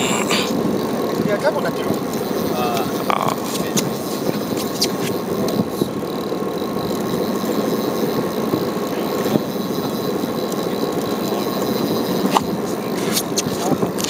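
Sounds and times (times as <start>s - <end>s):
faint high whine: 0.0s - 0.9s
boat engine idling: 0.0s - 14.0s
wind: 0.0s - 14.0s.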